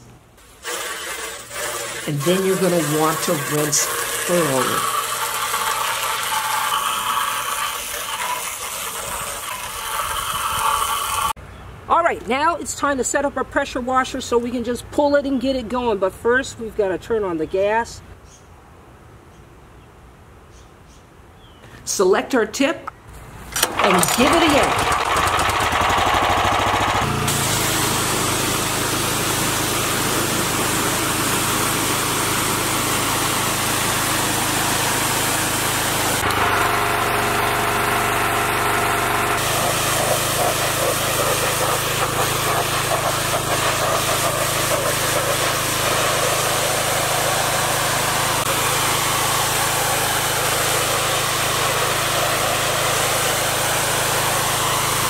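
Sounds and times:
water jet blasting fence: 0.0 - 11.4, 23.5 - 55.0
pressure washer engine running: 0.6 - 11.4, 23.6 - 55.0.

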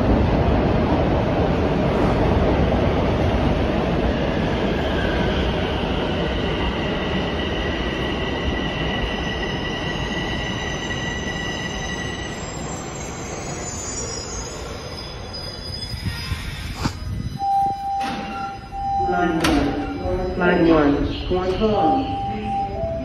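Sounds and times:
train wheels rumbling on rails: 0.0 - 21.9.

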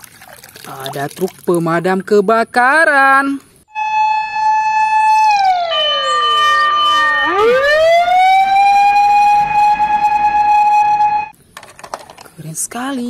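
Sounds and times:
fire engine siren wailing: 3.7 - 11.3.

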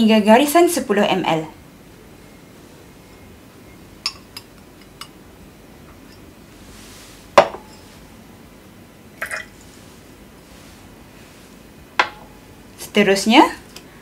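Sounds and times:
glass clinking: 4.0 - 5.2, 7.4 - 7.9, 9.2 - 9.5, 12.0 - 12.4
glass beaker set down: 7.4 - 7.9.

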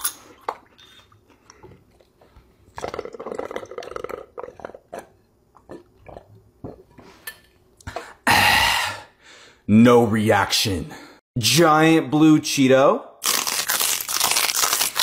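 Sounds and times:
person gulping a drink: 0.3 - 7.1.

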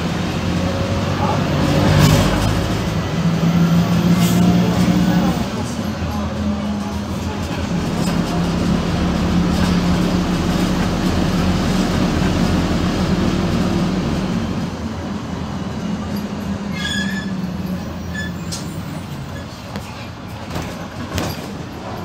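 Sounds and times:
bus engine drone: 0.0 - 22.0
road and tyre noise: 0.0 - 22.0
high-pitched squeal: 16.7 - 19.5.

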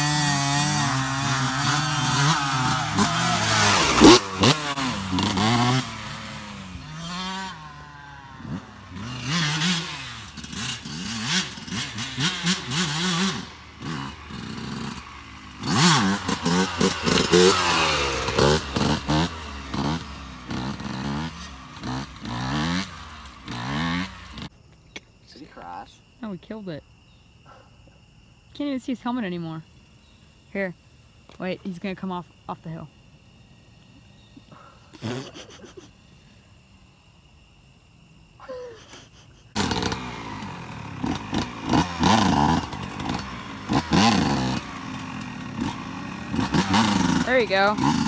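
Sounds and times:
dirt bike engine revving: 0.0 - 24.5, 39.5 - 48.0.

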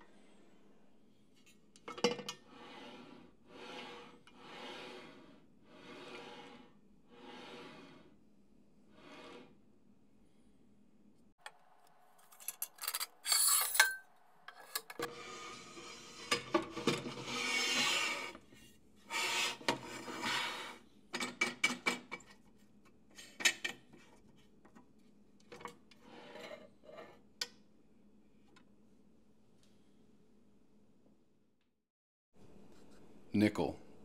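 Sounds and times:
metal scraping along metal: 12.2 - 18.4.

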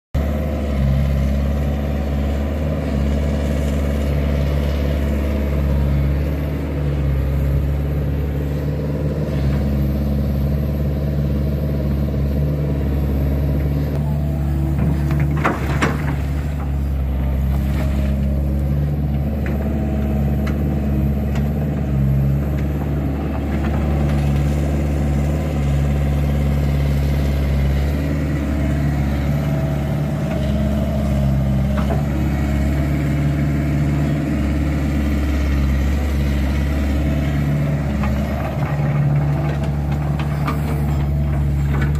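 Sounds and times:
excavator diesel engine running: 0.2 - 41.9.

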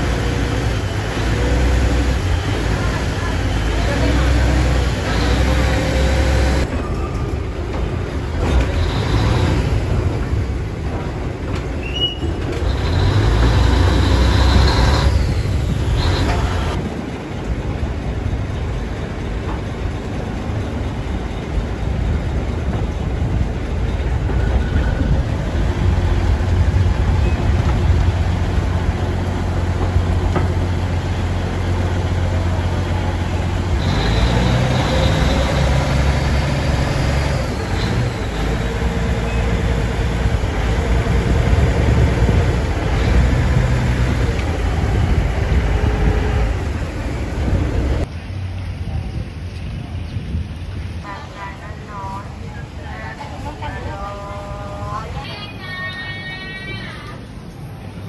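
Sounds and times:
boat engine running: 12.3 - 48.0.

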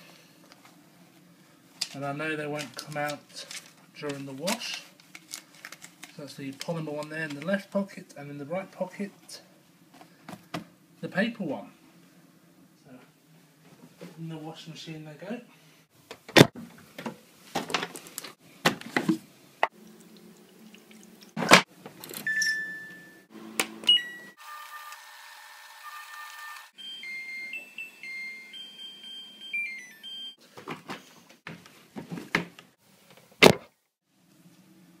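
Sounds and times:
control panel beeps: 22.3 - 23.0, 23.9 - 24.3.

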